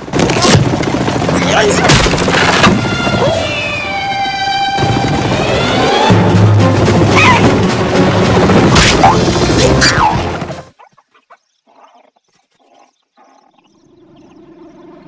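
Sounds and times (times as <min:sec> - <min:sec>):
loud cartoon music: 0:02.9 - 0:10.7
cartoon bird yelping: 0:09.0 - 0:12.1.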